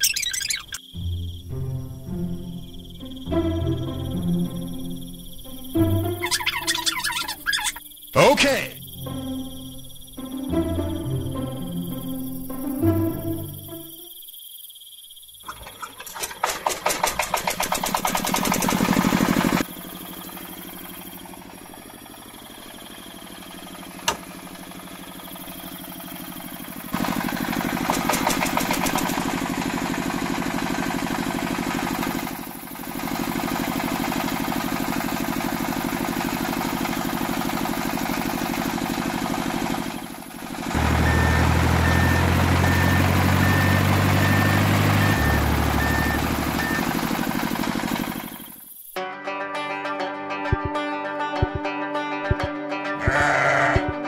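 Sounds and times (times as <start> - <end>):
small tractor engine running: 2.8 - 14.1, 15.4 - 49.0.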